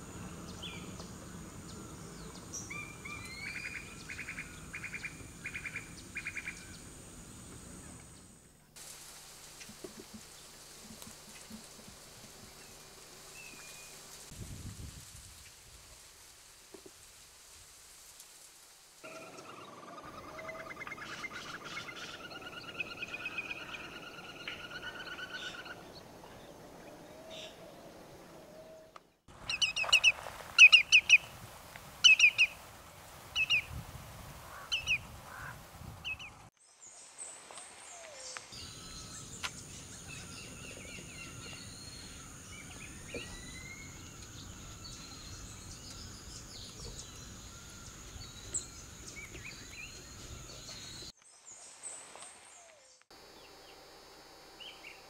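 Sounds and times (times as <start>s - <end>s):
shorebird calls: 19.1s - 26.0s.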